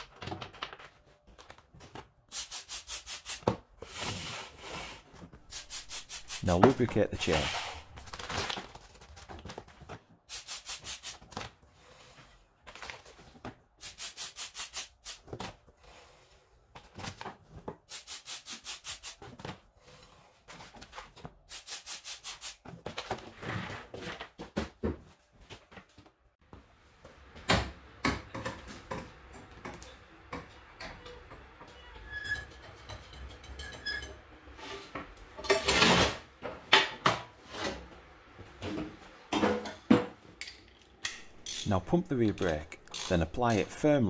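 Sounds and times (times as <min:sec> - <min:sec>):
aerosol spray hissing: 0:02.3 - 0:03.5, 0:05.5 - 0:06.5, 0:10.3 - 0:11.2, 0:13.8 - 0:15.2, 0:17.9 - 0:19.2, 0:21.5 - 0:22.6.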